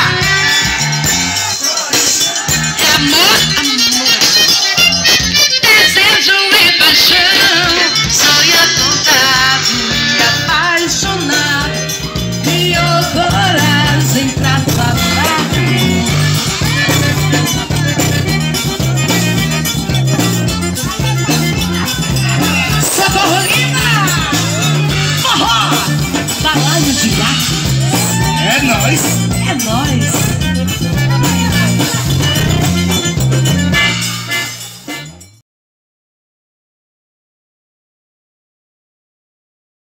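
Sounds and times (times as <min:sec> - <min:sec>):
repeating bass line: 0:00.0 - 0:04.1, 0:08.0 - 0:35.4
accordion playing melody: 0:00.0 - 0:27.9, 0:28.7 - 0:35.4.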